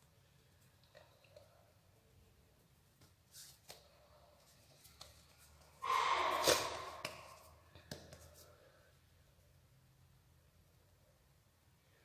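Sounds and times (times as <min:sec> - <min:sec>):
loud breathy rush of noise: 0:05.8 - 0:07.4
hands patting bread dough: 0:07.0 - 0:08.6.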